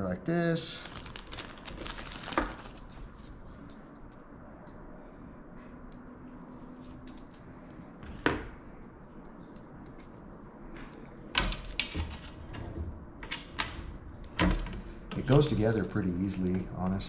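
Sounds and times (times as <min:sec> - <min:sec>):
small metal parts clinking: 0:00.8 - 0:04.8, 0:05.9 - 0:08.4.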